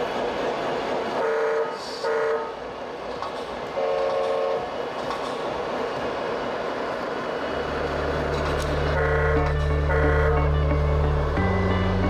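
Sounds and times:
multi-tone air horn blasts: 9.0 - 10.8.

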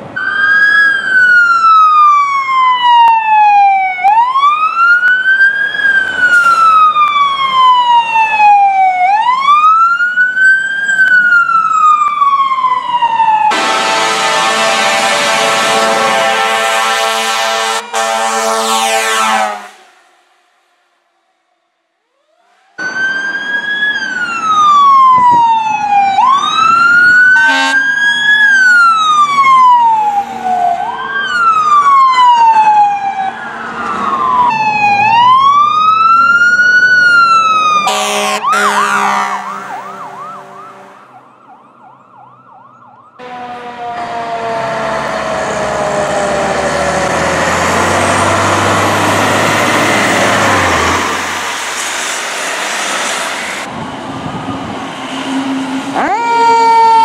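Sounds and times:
fire truck sirens wailing: 0.0 - 21.2, 21.9 - 57.0
fire truck engine passing: 0.0 - 57.0
harsh horn blast: 13.5 - 20.3, 27.4 - 27.9, 37.8 - 41.2.

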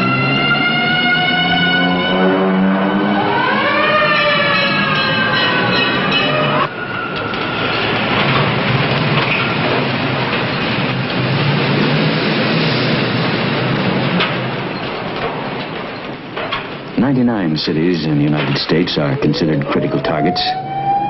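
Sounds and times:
held tone with overtones: 18.7 - 21.0.

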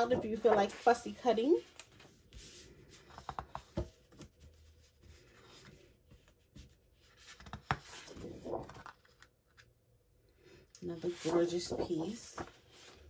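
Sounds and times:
paper sheet rustling: 0.0 - 5.8, 6.6 - 9.2, 11.0 - 13.0.

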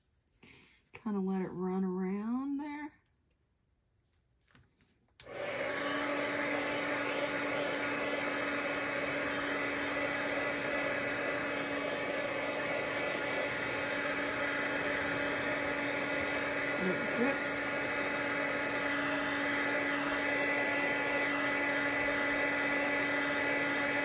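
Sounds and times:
hot-air dryer blowing: 5.2 - 24.0.

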